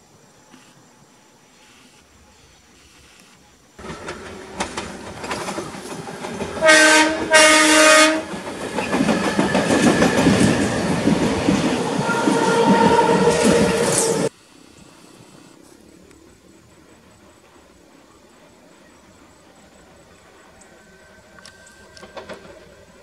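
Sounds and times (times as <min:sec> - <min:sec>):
wheel-on-rail noise: 0:00.1 - 0:23.0
steady train whine: 0:03.4 - 0:23.0
train horn: 0:06.5 - 0:08.4, 0:12.0 - 0:14.3.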